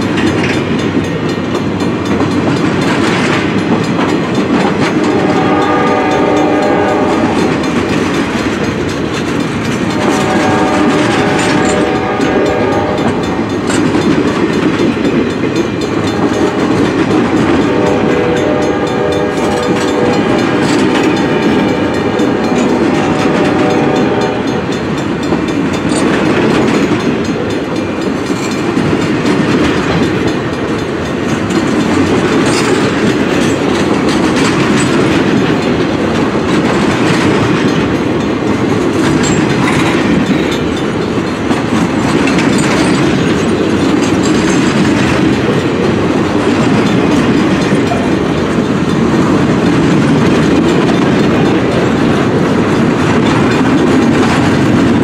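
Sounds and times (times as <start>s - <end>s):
train wheels clattering on rail: 0.0s - 55.0s
locomotive horn blasts: 4.9s - 7.6s, 9.9s - 13.3s, 16.1s - 16.9s, 17.6s - 24.7s.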